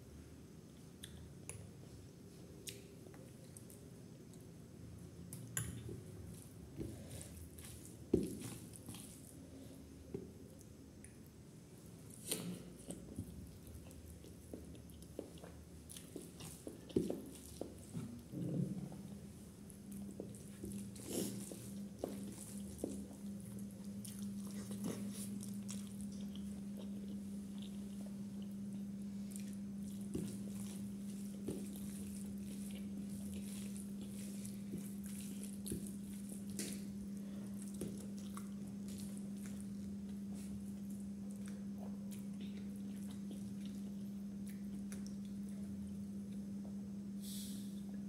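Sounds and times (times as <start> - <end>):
steady low hum: 0.0 - 48.0
person chewing and lip smacking: 0.8 - 1.7, 5.3 - 6.5, 12.1 - 18.3, 19.7 - 46.9.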